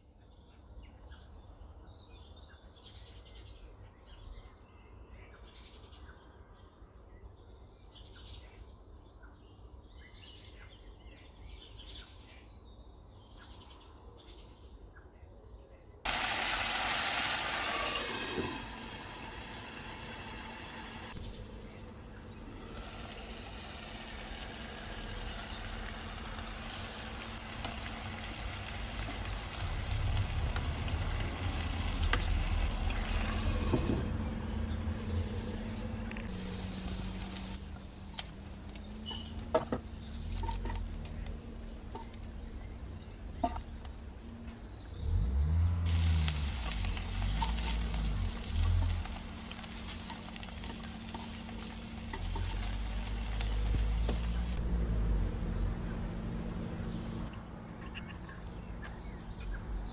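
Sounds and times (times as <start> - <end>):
chicken sizzling in oil: 16.1 - 21.2, 22.5 - 34.0, 36.3 - 40.9, 45.9 - 54.6.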